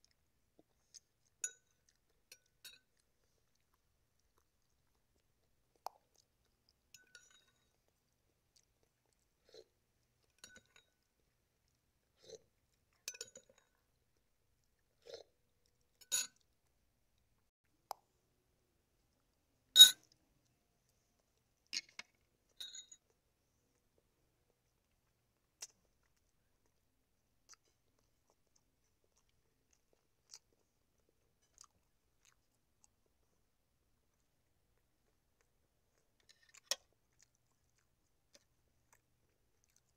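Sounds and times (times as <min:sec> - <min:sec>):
mouth sounds of eating: 0:00.0 - 0:10.4, 0:11.2 - 0:16.8, 0:23.4 - 0:39.9
metal spoon clinking on bowl: 0:06.9 - 0:07.7, 0:10.4 - 0:11.0, 0:13.0 - 0:13.6, 0:16.0 - 0:16.4, 0:22.6 - 0:23.0.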